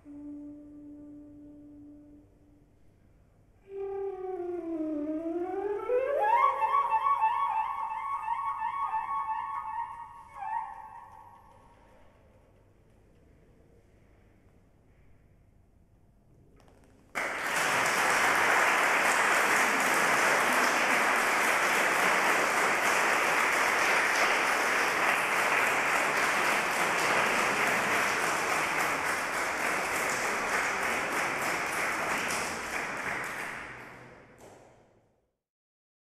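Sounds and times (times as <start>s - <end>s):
audience applauding: 17.1s - 34.2s.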